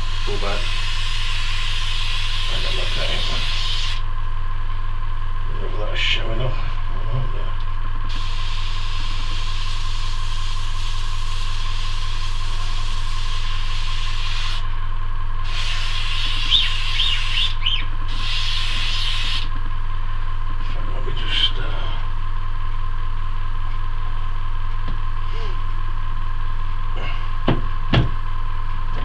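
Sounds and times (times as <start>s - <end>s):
airbrush spraying hiss: 0.0s - 4.0s, 8.1s - 14.6s, 15.4s - 17.5s, 18.1s - 19.5s
steady low hum: 0.0s - 29.0s.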